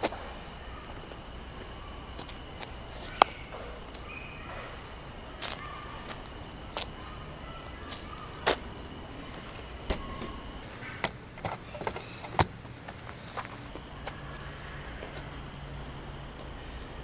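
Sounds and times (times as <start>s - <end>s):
outdoor hiss: 0.0s - 17.0s
sneakers stepping on pavement: 0.9s - 15.3s
stocking hitting asphalt: 9.9s - 13.8s.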